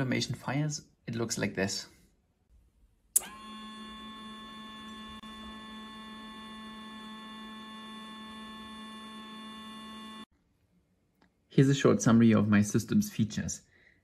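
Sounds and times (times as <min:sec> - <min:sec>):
relay switching: 0:03.2 - 0:05.3
small pump electric hum: 0:03.2 - 0:10.3.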